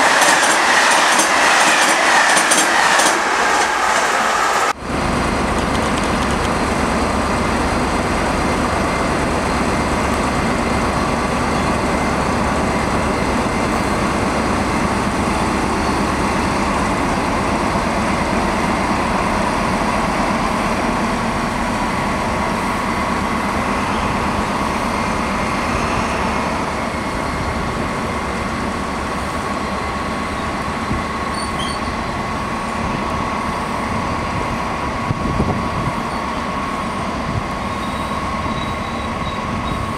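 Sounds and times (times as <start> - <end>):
diesel locomotive engines rumbling: 0.0 - 39.9.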